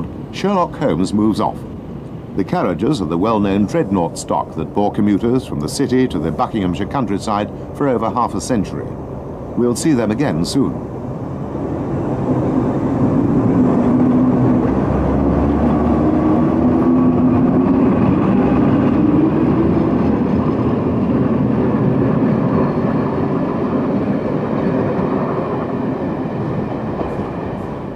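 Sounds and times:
train running along track: 0:00.0 - 0:27.9.

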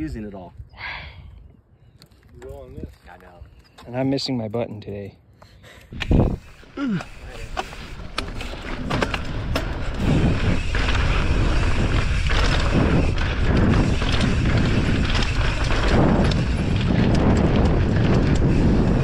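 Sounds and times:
wind rushing over microphone: 0:05.9 - 0:19.0
bike tyre rumble on dirt: 0:06.0 - 0:19.0.

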